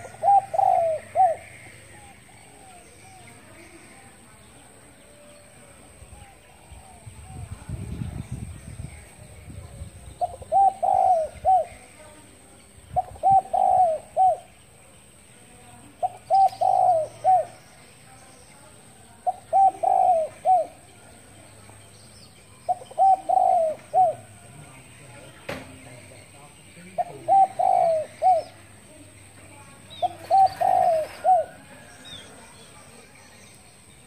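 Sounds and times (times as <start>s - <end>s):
dove cooing: 0.0s - 3.7s, 10.1s - 12.0s, 12.9s - 14.7s, 15.9s - 17.8s, 19.2s - 21.1s, 22.6s - 24.6s, 26.8s - 29.2s, 29.9s - 32.4s.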